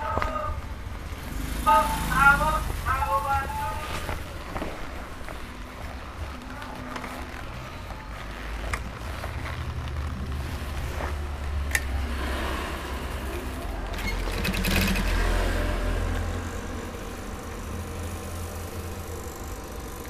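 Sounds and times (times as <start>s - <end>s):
sewing machine stitching leather: 6.2s - 20.0s.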